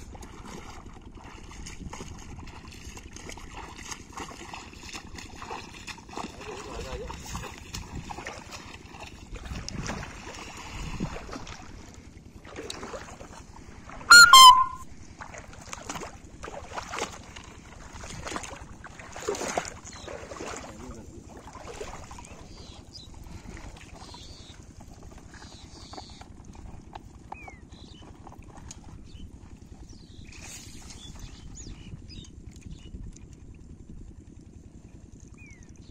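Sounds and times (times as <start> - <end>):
feet wading through water: 0.0 - 35.9
high-pitched bird call: 14.1 - 14.8.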